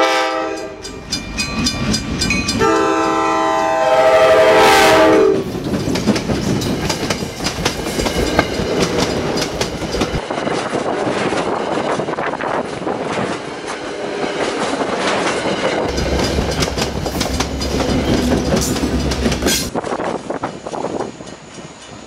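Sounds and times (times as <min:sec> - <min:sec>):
locomotive passing: 0:00.0 - 0:22.0
passenger train passing: 0:00.0 - 0:22.0
wheels clicking over rail joints: 0:05.4 - 0:22.0.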